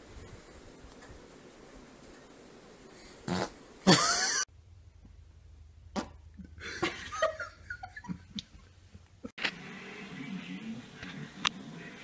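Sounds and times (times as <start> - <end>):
farts: 3.2 - 4.0.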